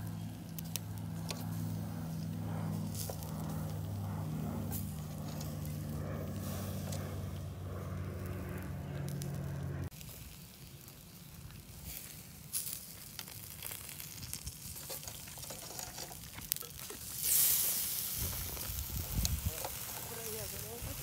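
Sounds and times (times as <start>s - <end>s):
steady low hum: 0.0s - 9.9s
meat sizzling on grill: 9.9s - 21.0s.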